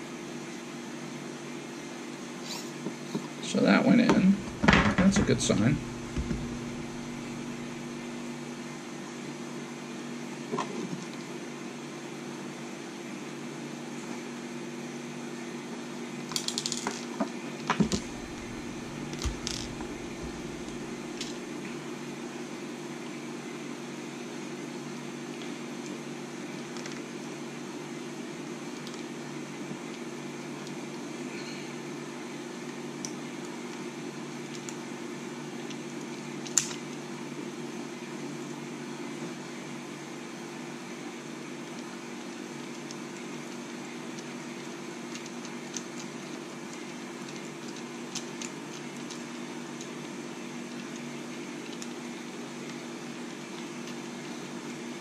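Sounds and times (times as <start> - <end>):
low machine hum: 3.2 - 10.4, 17.8 - 26.4.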